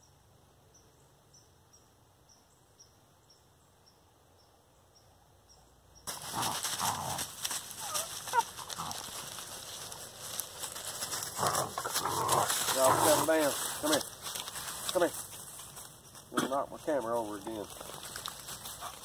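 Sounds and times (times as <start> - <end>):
rustling and scuffing: 6.1 - 19.0.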